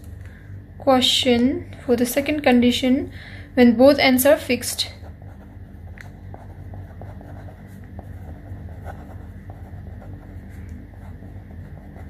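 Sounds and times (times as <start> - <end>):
steady low hum: 0.0 - 12.0
pen scratching on paper: 5.0 - 12.0.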